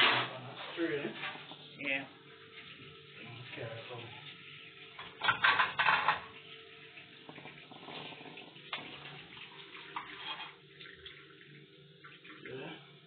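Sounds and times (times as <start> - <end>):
water pouring through strainer into sink: 3.2 - 13.0.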